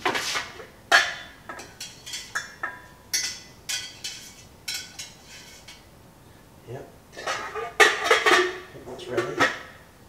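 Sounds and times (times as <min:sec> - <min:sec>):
metal pot and lid clinking: 0:00.9 - 0:05.9, 0:07.2 - 0:09.7.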